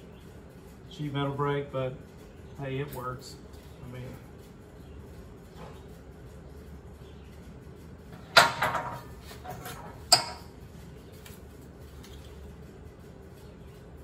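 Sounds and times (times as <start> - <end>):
metallic rattles: 0.0 - 10.8.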